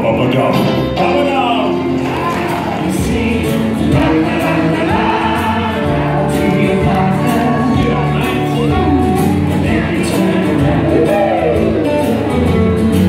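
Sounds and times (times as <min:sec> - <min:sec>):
children's band group singing: 0:02.0 - 0:12.3.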